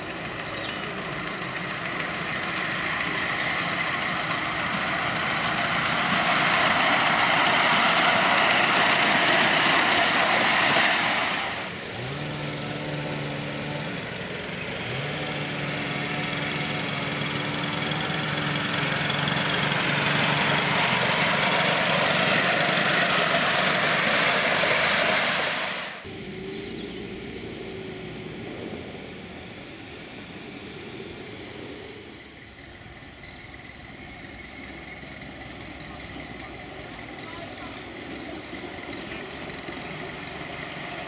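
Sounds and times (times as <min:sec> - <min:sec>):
miniature steam locomotive running: 0:00.0 - 0:11.8, 0:16.8 - 0:25.2, 0:33.8 - 0:41.0.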